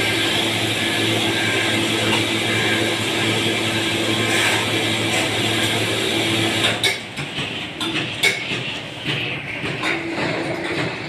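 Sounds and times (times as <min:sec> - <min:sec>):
sharp clicks and knocks: 0:06.6 - 0:11.0.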